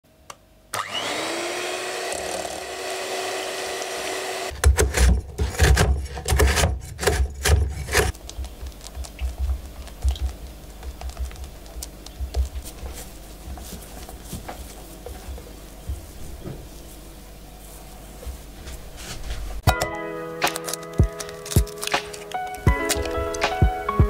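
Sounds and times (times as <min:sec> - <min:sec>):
electric hand mixer whirring: 0:00.8 - 0:04.6.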